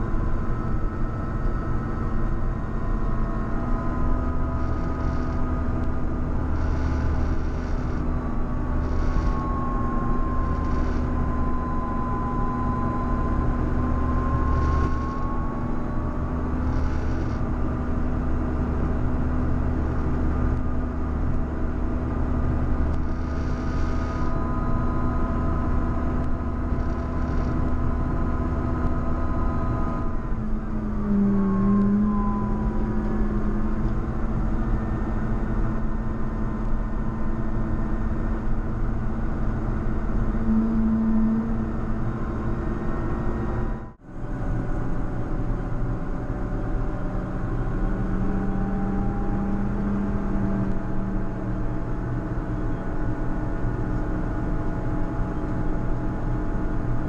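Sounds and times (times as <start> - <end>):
tractor diesel engine running: 0.0 - 31.1.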